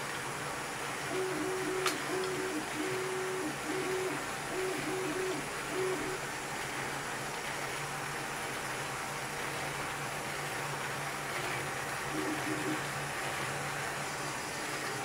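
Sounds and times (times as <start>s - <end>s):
small model engine whirring: 1.1s - 6.2s.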